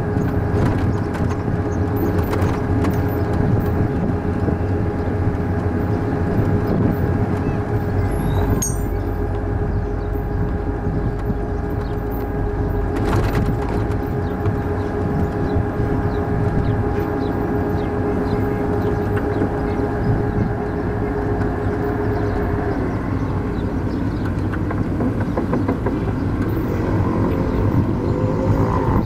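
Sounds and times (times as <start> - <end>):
armored vehicle engine rumble: 0.0 - 29.0
vehicle whine: 0.0 - 29.0.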